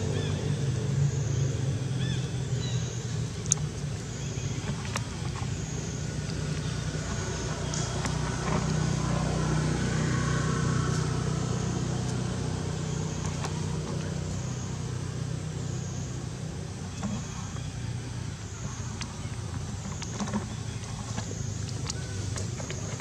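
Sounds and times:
motor engine humming: 0:00.0 - 0:23.0.

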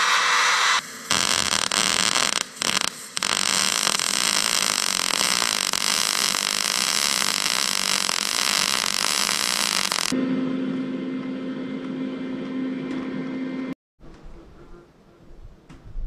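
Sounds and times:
welding arc sizzling: 0:00.0 - 0:10.2.

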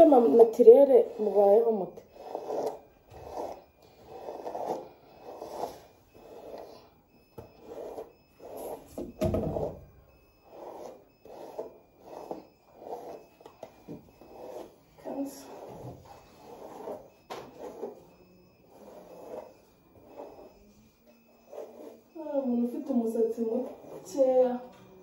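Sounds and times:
hairbrush brushing curly hair: 0:00.0 - 0:06.8, 0:10.5 - 0:13.3, 0:14.2 - 0:18.0, 0:21.4 - 0:22.1.

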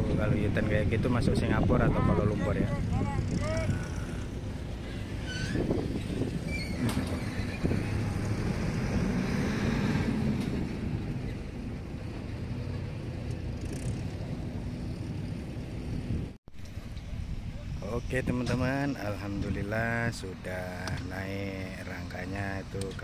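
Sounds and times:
low engine drone: 0:01.7 - 0:05.3.

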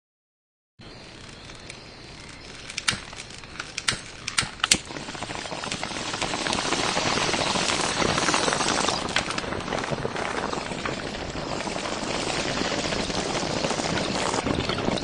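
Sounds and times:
sharp clicks: 0:01.0 - 0:04.9
wind buffeting microphone: 0:01.2 - 0:15.0.

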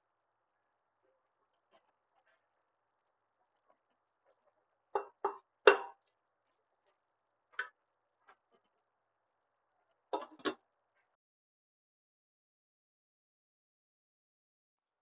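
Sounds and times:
wooden utensil knocking on metal pot: 0:05.0 - 0:06.0.

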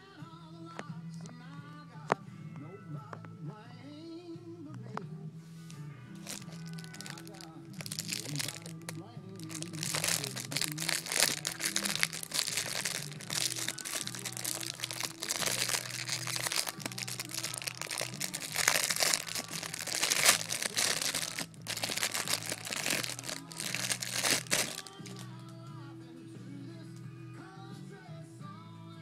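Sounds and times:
packaging crinkling: 0:06.2 - 0:25.2.

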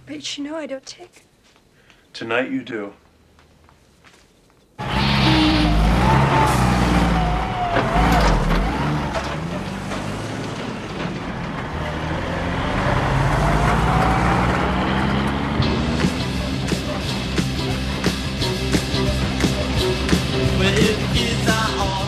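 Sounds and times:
truck engine driving past: 0:04.8 - 0:21.3.

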